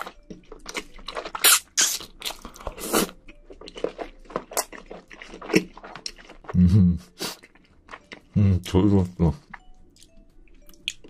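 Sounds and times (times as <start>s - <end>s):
crunchy bites and chewing: 0.0s - 6.6s.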